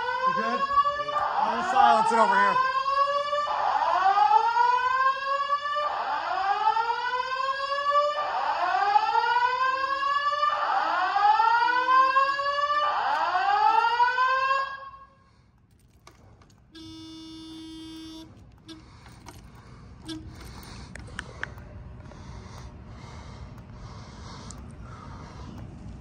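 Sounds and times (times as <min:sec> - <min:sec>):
fire alarm whoop: 0:00.0 - 0:15.2, 0:16.8 - 0:18.8
short steady beep: 0:16.7 - 0:19.0, 0:20.0 - 0:20.4.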